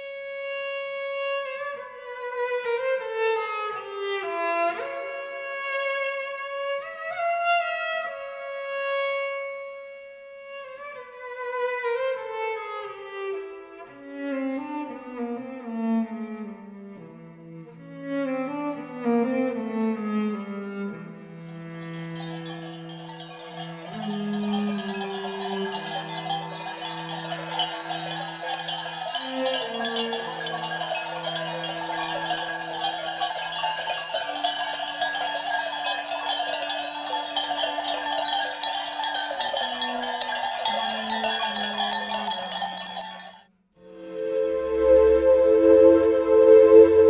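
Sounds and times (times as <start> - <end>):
animal bells clinking: 21.7 - 43.5
held low notes: 43.9 - 47.0.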